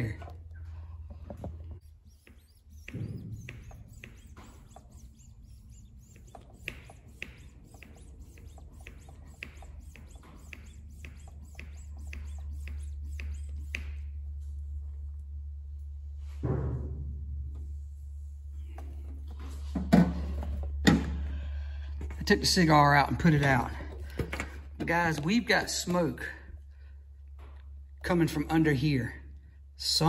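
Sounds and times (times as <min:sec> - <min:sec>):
hand pump clicking and squeaking: 0:01.2 - 0:14.0.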